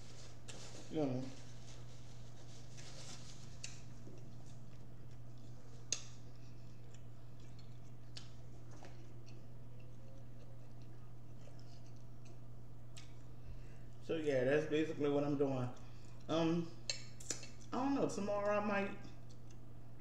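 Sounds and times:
paper napkin rustling: 0.0 - 4.6
steady low hum: 0.0 - 20.0
chewing clicks and smacks: 3.6 - 13.3, 15.7 - 17.8, 18.4 - 19.7.

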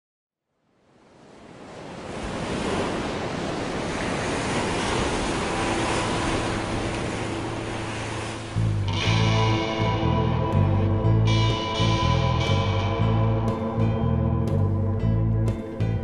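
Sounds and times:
ocean surf washing: 0.8 - 14.6
guitar music: 5.2 - 16.0
held low musical note: 5.2 - 16.0.

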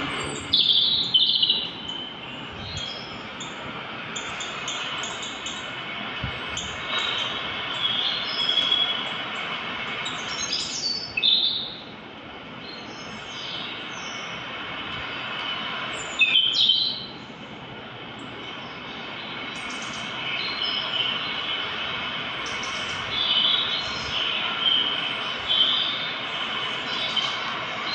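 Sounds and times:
birds chirping through phone speaker: 0.0 - 11.8, 18.3 - 27.9
steady high-pitched tone: 0.0 - 12.0, 12.7 - 27.9.

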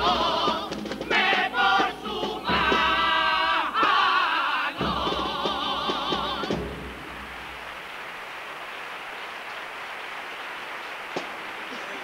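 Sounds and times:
male chorus singing in harmony: 0.0 - 6.9.

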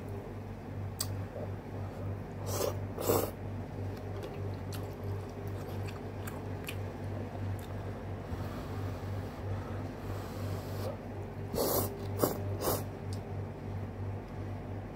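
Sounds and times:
wet mouth clicks: 1.0 - 1.2
man chewing food: 2.4 - 9.5, 10.1 - 13.3.

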